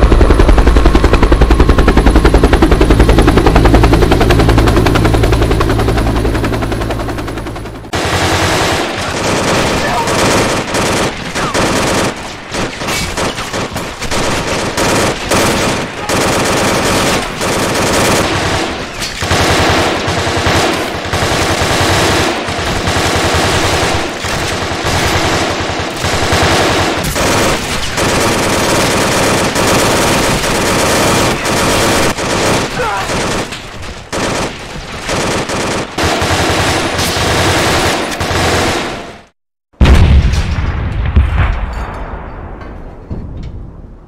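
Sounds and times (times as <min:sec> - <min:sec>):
machine-gun fire: 0:07.9 - 0:41.9.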